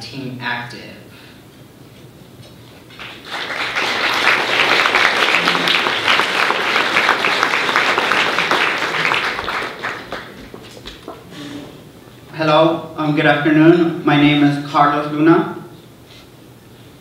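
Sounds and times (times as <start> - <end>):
audience applauding: 2.9 - 11.4.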